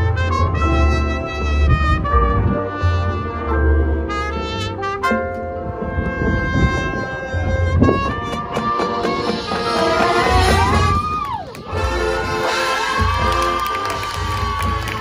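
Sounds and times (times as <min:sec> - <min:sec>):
brass band chords: 0:00.0 - 0:15.0
crowd cheering: 0:08.5 - 0:15.0.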